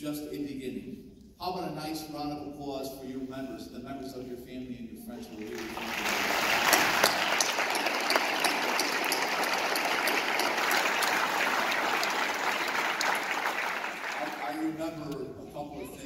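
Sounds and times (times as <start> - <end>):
audience applauding: 5.3 - 14.8
sharp nearby claps: 5.5 - 14.6.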